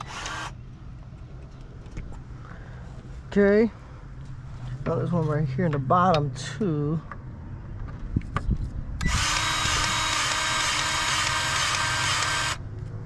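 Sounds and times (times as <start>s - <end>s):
powered grease gun running: 0.0s - 0.5s, 9.0s - 12.6s.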